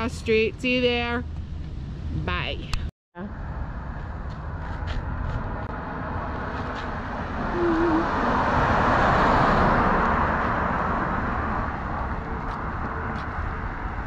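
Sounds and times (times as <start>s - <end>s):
car passing: 3.3s - 14.0s.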